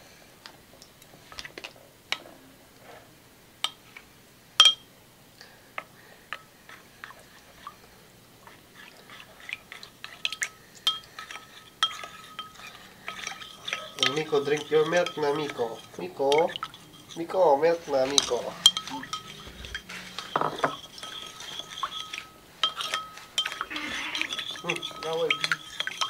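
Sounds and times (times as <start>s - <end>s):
spoon clinking against ceramic bowl: 4.6s - 4.9s, 9.8s - 26.0s.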